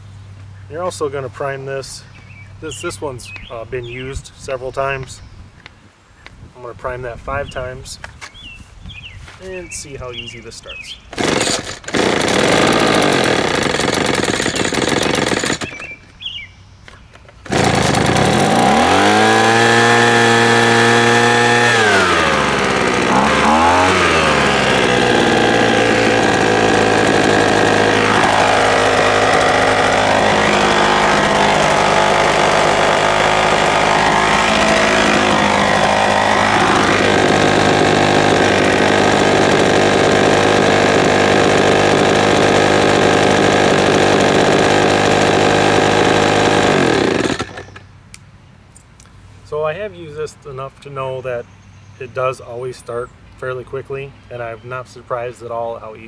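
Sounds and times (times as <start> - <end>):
leaf blower engine revving: 11.1 - 16.0, 17.4 - 47.8.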